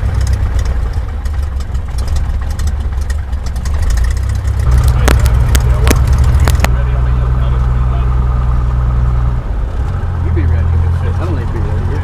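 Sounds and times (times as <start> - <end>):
sharp clicks: 0.0 - 6.8
airplane engine and propeller: 0.0 - 12.0.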